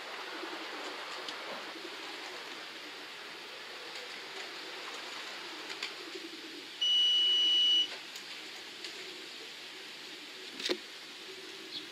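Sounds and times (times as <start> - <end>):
electronic clock beep: 6.8 - 7.9.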